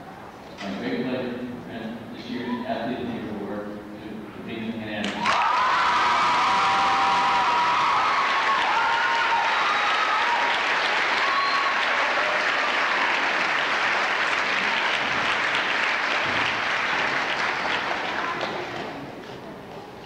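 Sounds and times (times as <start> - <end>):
audience applauding: 5.1 - 19.0.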